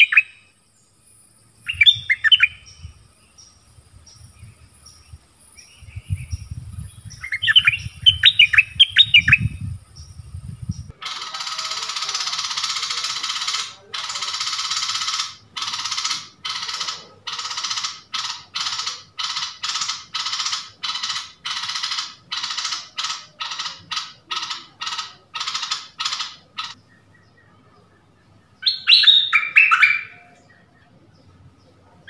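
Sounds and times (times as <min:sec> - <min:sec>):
bird singing clear notes: 0:00.0 - 0:32.0.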